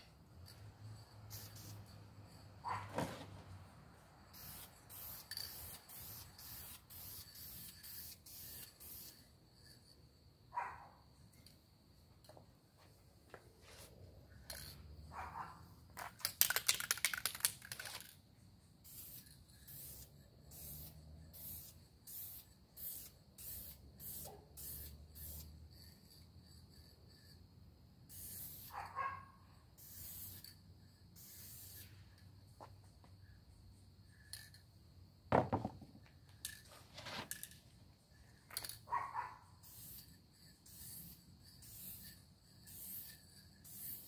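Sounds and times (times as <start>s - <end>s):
aerosol can spraying: 4.4s - 9.2s, 39.6s - 44.0s.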